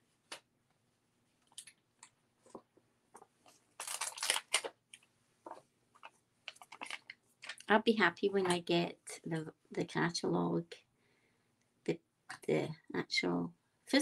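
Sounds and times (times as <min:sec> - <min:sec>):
plastic sheet crinkling: 0:03.2 - 0:07.7.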